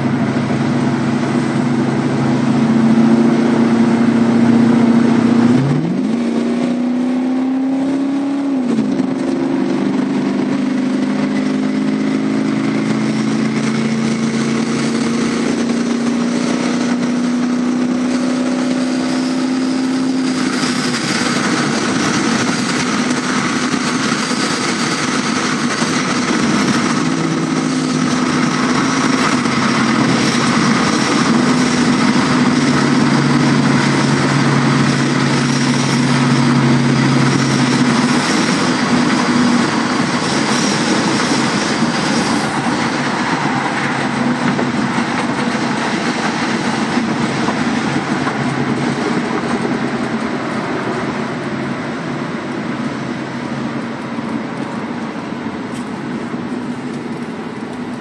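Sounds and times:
car engine droning: 0:00.0 - 0:58.0
wind and road noise: 0:00.0 - 0:58.0.

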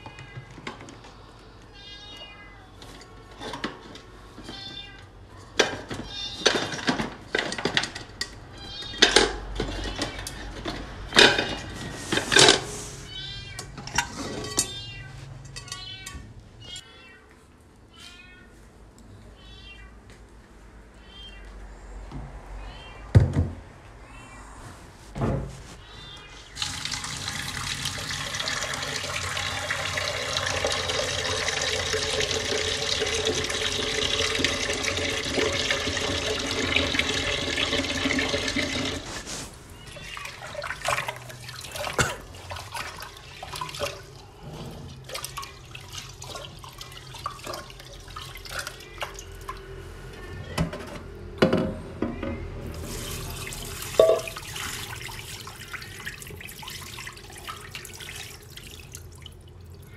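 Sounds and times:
tap water running into pot: 0:26.6 - 0:39.1, 0:45.0 - 0:49.6, 0:52.7 - 0:59.8.

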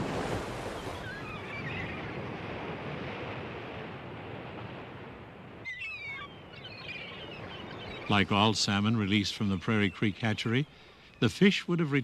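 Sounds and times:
surf waves breaking on beach: 0:00.0 - 0:05.6.

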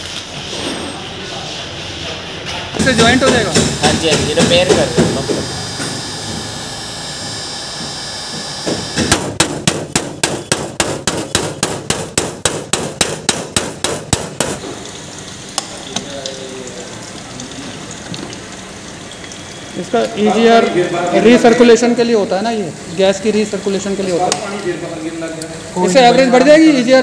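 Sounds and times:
hammer blows on sheet metal: 0:02.8 - 0:05.4
heat gun blowing: 0:03.6 - 0:09.4.

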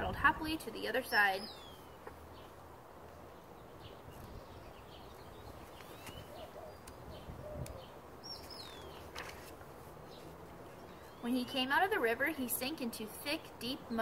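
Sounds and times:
small birds chirping: 0:00.0 - 0:14.0
book pages rustling: 0:05.6 - 0:07.0, 0:08.4 - 0:10.5.

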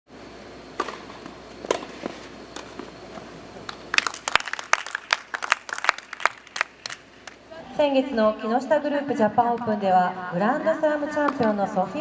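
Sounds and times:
tennis ball struck by rackets: 0:00.8 - 0:03.3
spectators clapping: 0:03.7 - 0:07.4.

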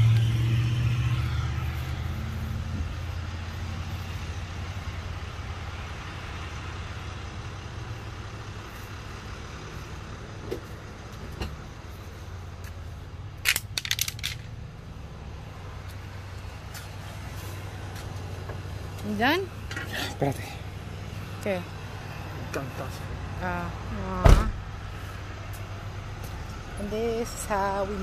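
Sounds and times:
truck engine idling: 0:00.0 - 0:28.0
sharp metallic clicks: 0:13.4 - 0:14.5.

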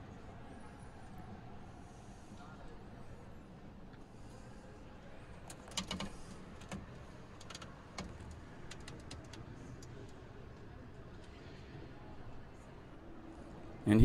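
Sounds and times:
low hum of indoor hall: 0:00.0 - 0:14.0
light clicks and taps: 0:05.4 - 0:11.4.

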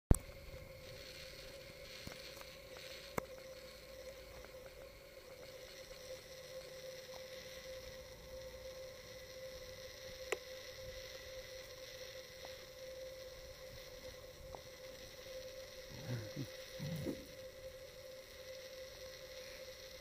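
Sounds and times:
faint electrical hum: 0:00.1 - 0:20.0
pig grunting: 0:15.9 - 0:17.3.

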